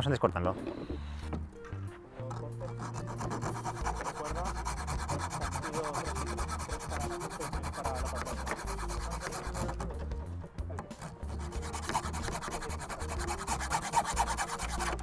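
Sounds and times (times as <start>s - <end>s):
saw cutting through bamboo: 2.3s - 10.0s, 10.9s - 15.0s.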